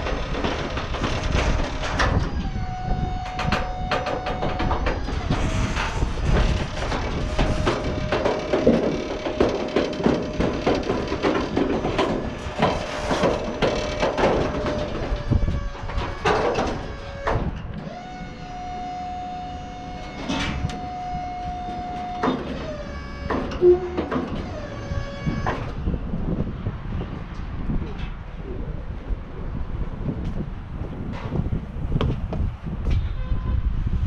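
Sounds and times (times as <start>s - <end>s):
steel deck clanking and rattling: 0.0s - 18.4s, 19.9s - 25.8s
hydraulic whine: 0.0s - 26.2s.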